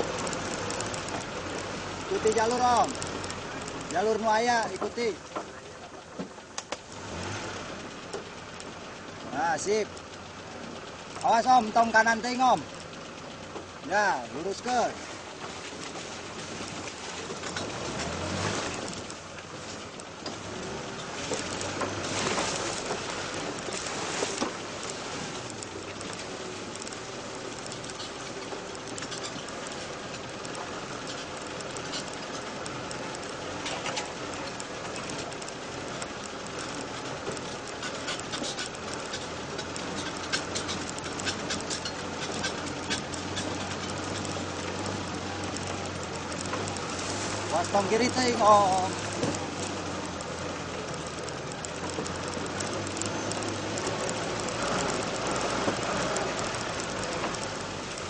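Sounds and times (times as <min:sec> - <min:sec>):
off-road vehicle rattling rumble: 0:00.0 - 0:58.0.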